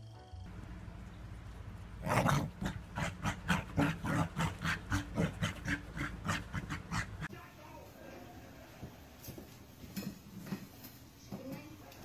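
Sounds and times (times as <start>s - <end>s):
small dog panting and grunting: 2.0s - 7.3s.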